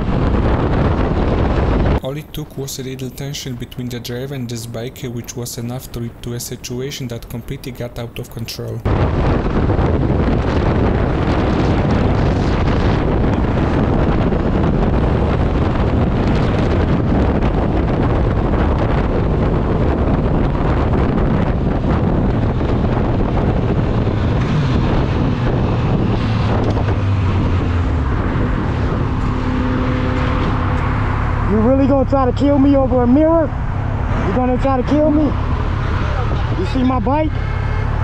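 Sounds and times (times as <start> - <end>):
wind rushing over microphone: 0.0 - 38.0
motorcycle engine: 9.4 - 38.0.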